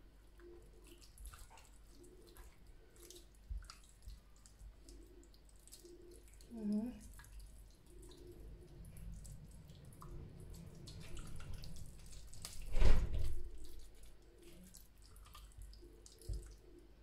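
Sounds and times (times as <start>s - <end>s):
hands squelching marinade: 0.3s - 17.0s.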